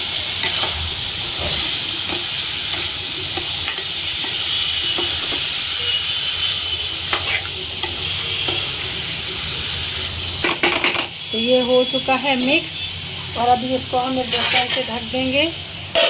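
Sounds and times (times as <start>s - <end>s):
pumpkin sizzling in oil: 0.0s - 16.0s
spoon scraping metal pan: 7.1s - 8.7s, 14.2s - 15.0s.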